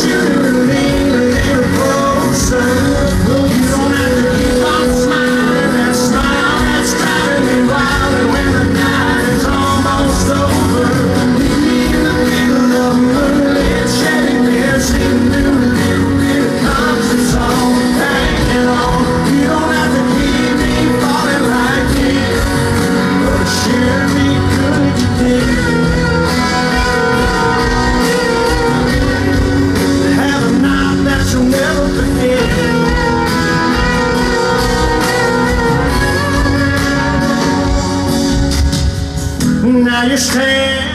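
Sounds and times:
electric guitars: 0.0 - 40.9
live country band playing: 0.0 - 40.9.

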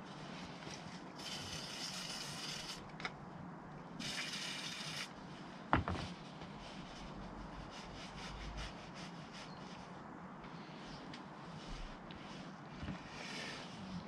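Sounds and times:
aerosol can spraying: 1.2 - 2.8, 4.0 - 5.1.

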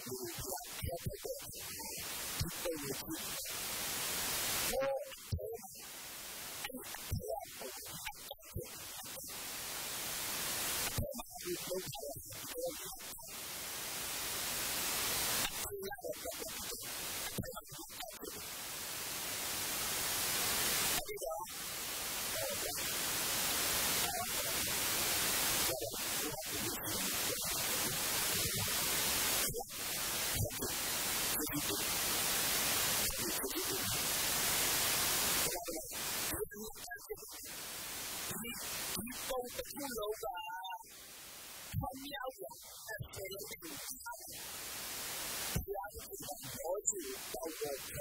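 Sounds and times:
man preaching through microphone: 0.0 - 3.6, 4.7 - 5.9, 6.6 - 9.4, 10.8 - 13.4, 15.4 - 18.4, 20.9 - 21.5, 22.3 - 22.9, 24.0 - 24.7, 25.6 - 28.7, 29.3 - 31.8, 33.0 - 34.0, 35.4 - 37.6, 38.3 - 40.9, 41.8 - 44.4, 45.5 - 48.0
steady hiss: 0.0 - 48.0.

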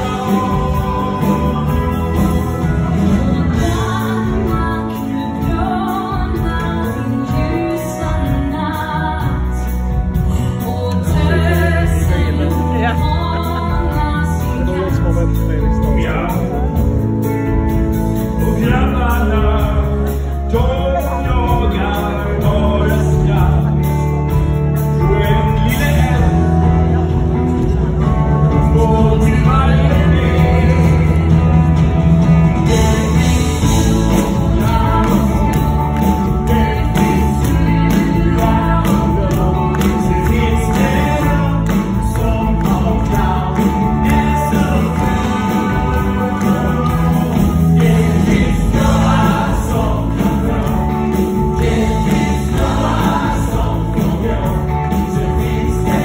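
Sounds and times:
people singing: 0.0 - 16.9, 17.7 - 56.0
live band playing: 0.0 - 56.0.

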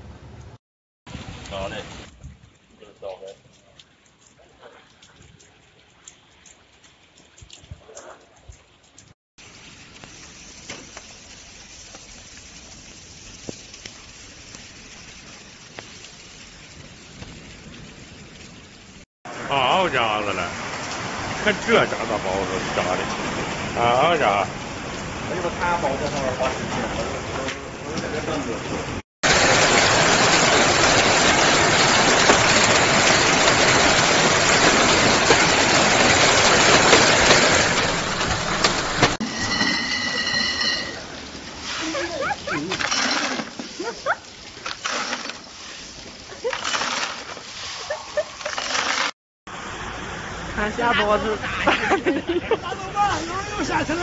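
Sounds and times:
rain hissing: 1.1 - 7.8, 8.8 - 54.0
hailstones ticking: 1.2 - 19.0, 29.2 - 39.2.

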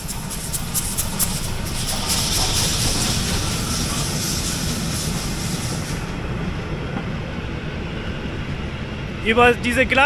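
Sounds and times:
steam hissing: 0.0 - 6.4
train rumble: 0.0 - 10.0.

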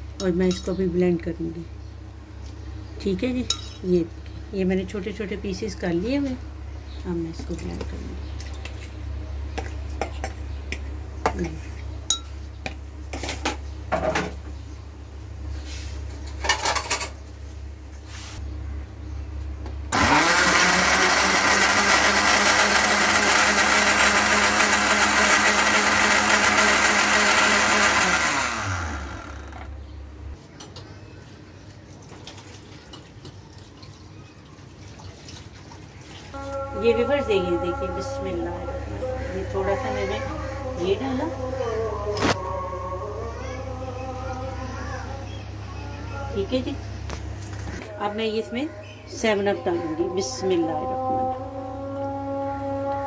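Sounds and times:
blender running: 19.9 - 29.7.

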